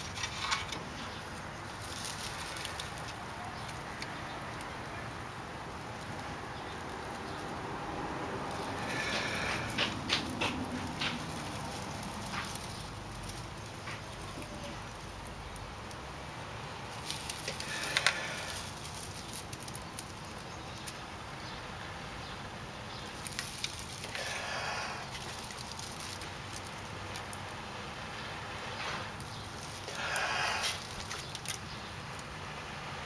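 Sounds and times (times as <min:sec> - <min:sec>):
dry needles crackling and rustling: 0:00.0 - 0:33.0
person blowing breaths: 0:08.5 - 0:11.1, 0:17.4 - 0:18.9, 0:24.0 - 0:25.6, 0:29.8 - 0:31.3.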